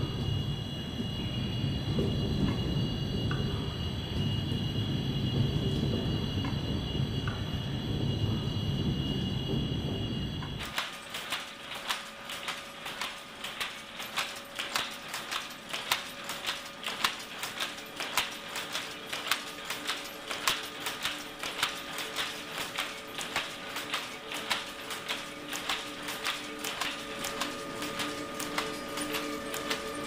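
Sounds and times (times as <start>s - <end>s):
power looms clattering: 10.6s - 30.0s.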